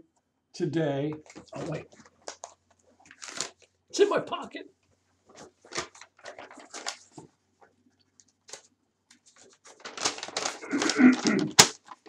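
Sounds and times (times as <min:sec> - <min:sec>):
paper crinkling: 0:01.2 - 0:03.8, 0:05.2 - 0:12.0
clothing rustling: 0:01.2 - 0:03.9, 0:04.8 - 0:12.0.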